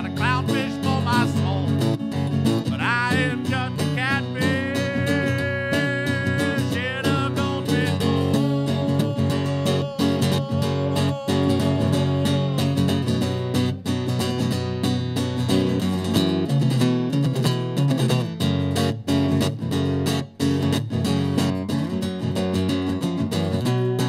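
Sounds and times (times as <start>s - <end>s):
man singing: 0.0s - 13.5s
guitar: 0.0s - 24.0s.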